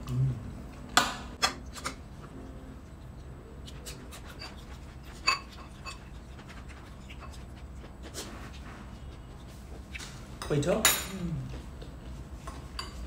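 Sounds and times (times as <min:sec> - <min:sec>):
chewing noise: 0:02.2 - 0:10.0.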